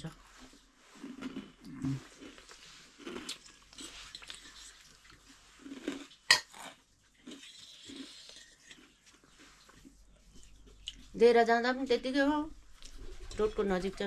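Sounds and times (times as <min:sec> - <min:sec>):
person chewing: 0:00.8 - 0:11.1
dishes and utensils clinking: 0:13.0 - 0:14.0.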